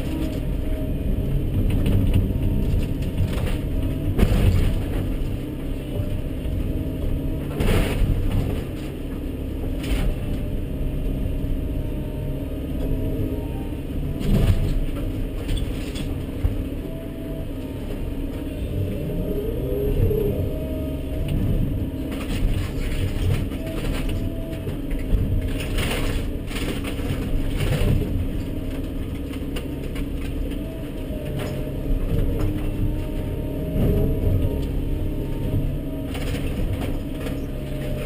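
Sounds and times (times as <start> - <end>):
diesel engine running: 0.0 - 38.0
hydraulic whine: 9.9 - 26.4.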